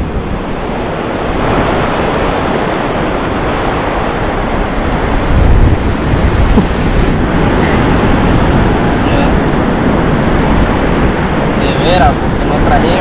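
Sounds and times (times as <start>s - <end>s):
ocean surf washing onto beach: 0.0s - 13.0s
wind buffeting microphone: 0.0s - 13.0s.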